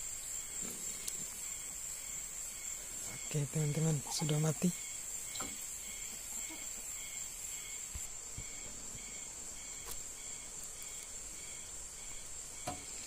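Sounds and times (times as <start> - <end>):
faint insect chirp: 0.0 - 13.0
insects buzzing high-pitched: 0.0 - 13.0
soft knocks of bamboo sticks: 12.6 - 13.0.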